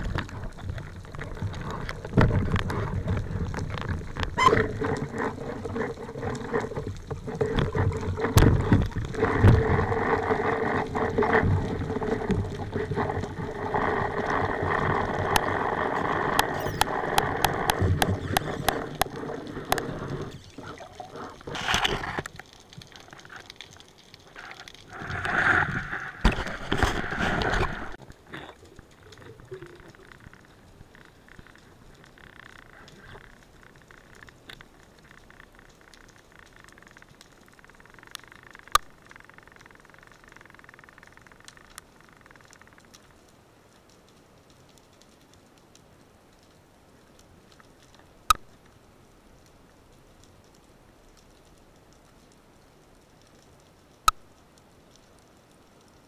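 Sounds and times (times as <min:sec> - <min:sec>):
muffled underwater bubbling: 0:00.0 - 0:22.3, 0:24.2 - 0:34.4.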